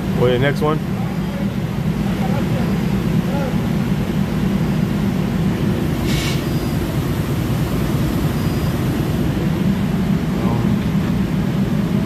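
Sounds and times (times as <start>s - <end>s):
low machinery rumble: 0.0s - 12.0s
brief hiss: 6.0s - 6.6s.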